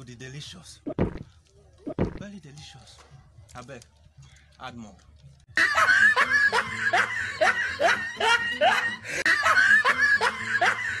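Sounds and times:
laugh sound effect: 5.6 - 11.0.

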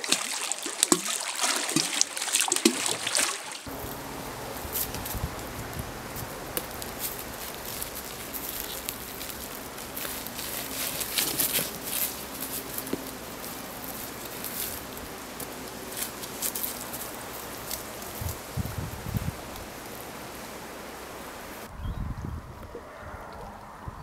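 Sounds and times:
branches shaking leaves: 0.0 - 21.7
hands and shoes scraping bark: 4.6 - 21.7.

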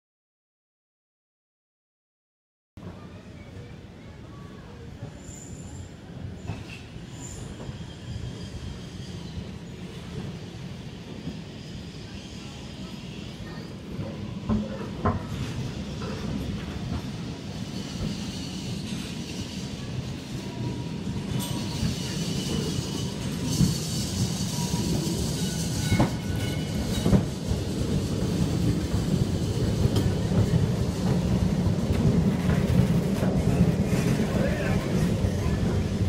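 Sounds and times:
steel wheels rumbling on rails: 11.0 - 36.0
thin wheel squeal: 21.3 - 27.0.

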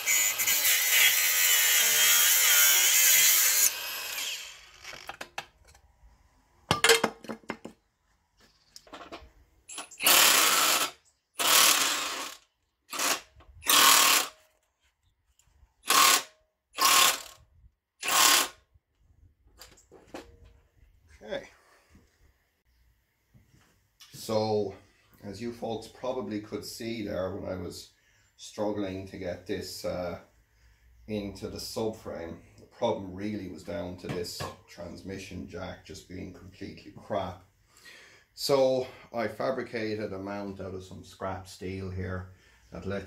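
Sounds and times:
cordless power tool running: 3.5 - 5.2, 10.0 - 14.3.

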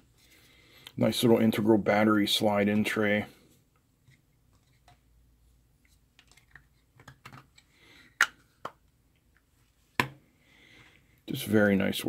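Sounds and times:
plastic case clicks and taps: 7.0 - 7.5.

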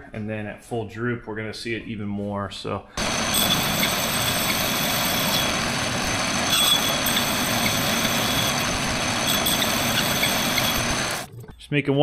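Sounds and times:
machine tool running: 3.0 - 11.3.

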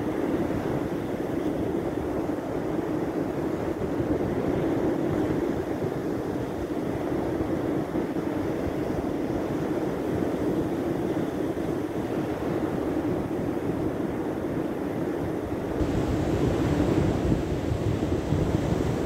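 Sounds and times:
wind on microphone: 0.0 - 19.0
breaking surf: 15.8 - 19.0.

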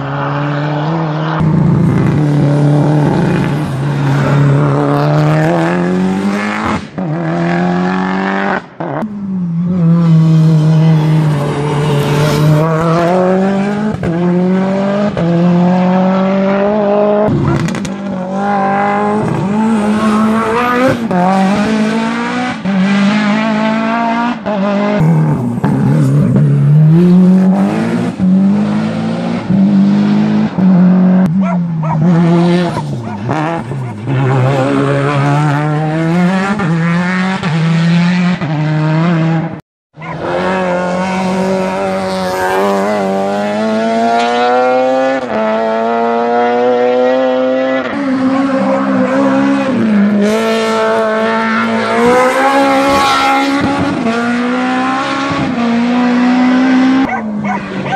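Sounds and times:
race car engines revving: 0.0 - 57.9.

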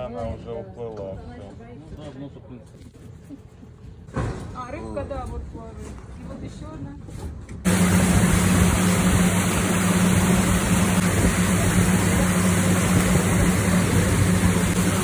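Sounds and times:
boat engine humming: 7.7 - 15.0.

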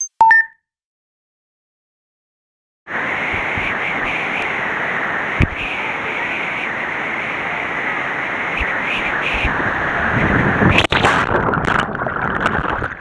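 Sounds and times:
waterfall rushing: 2.9 - 11.3.

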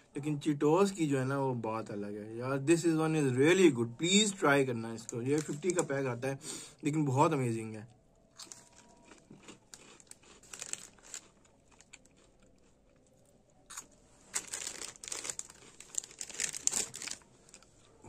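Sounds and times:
snack packet crinkling: 5.0 - 6.1, 8.4 - 13.1, 13.7 - 17.9
crunchy snack chewing: 8.3 - 18.0.

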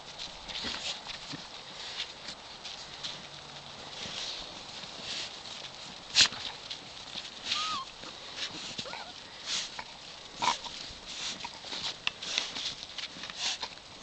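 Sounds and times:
paws crunching in snow: 0.0 - 14.0
puppy squeaking: 7.5 - 7.9.

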